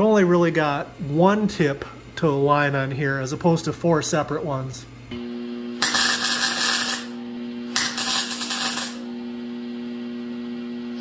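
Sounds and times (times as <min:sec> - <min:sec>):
power tool humming: 0:05.2 - 0:11.0.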